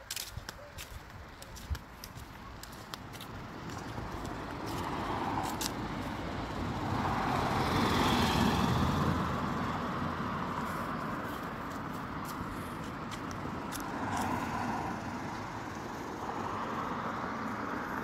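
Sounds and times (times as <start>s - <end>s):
vehicle passing by: 3.2s - 18.0s.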